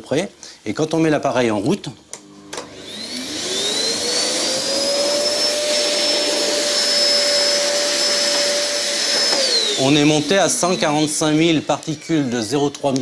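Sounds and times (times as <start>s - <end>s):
vacuum cleaner motor whine: 2.2s - 13.0s
vacuum cleaner switch click: 9.1s - 9.6s.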